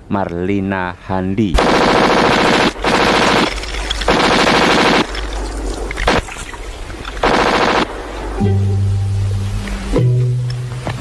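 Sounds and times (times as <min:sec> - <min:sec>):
machine-gun fire: 0:01.6 - 0:05.2, 0:06.0 - 0:06.3, 0:07.2 - 0:08.3
single gunshots: 0:01.6 - 0:05.2.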